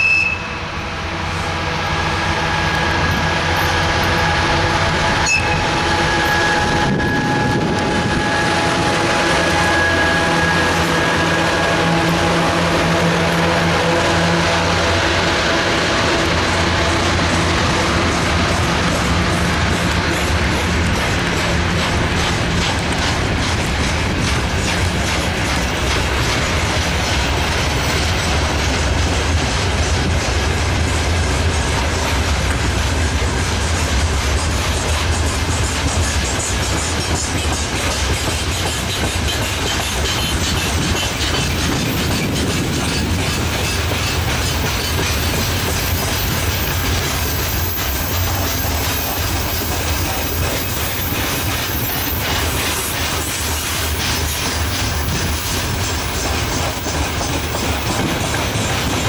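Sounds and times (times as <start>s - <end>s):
diesel locomotive engine drone: 0.0s - 59.0s
wheels rumbling on rail: 0.0s - 59.0s
click with high squeak: 5.2s - 5.6s.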